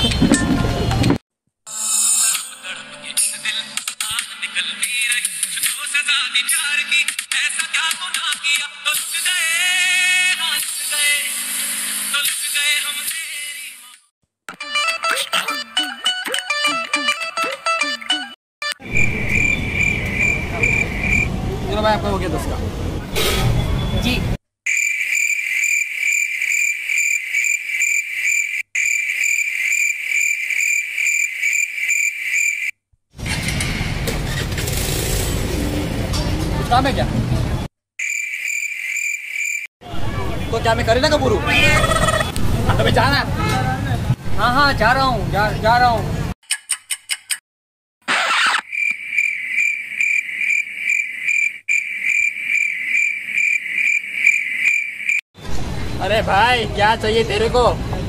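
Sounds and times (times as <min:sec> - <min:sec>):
street background noise: 0:00.0 - 0:01.2, 0:18.8 - 0:24.4, 0:33.2 - 0:37.7, 0:39.8 - 0:46.4, 0:48.9 - 0:58.0
cricket chirping sound effect: 0:18.8 - 0:21.3, 0:24.7 - 0:32.8, 0:38.0 - 0:39.7, 0:41.5 - 0:42.3, 0:48.1 - 0:55.2.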